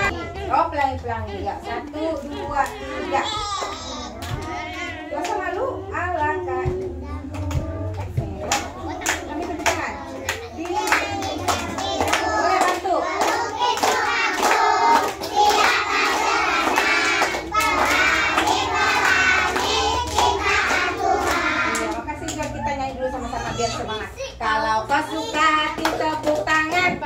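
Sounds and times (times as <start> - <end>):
children singing: 6.7 - 22.0.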